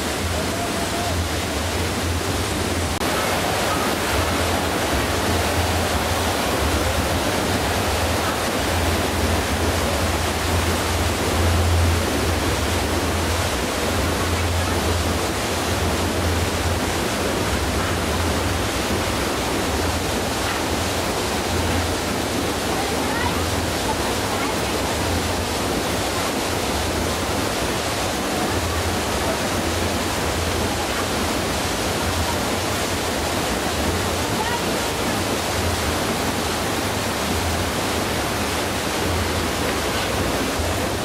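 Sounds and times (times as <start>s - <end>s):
rushing water: 0.0s - 41.0s.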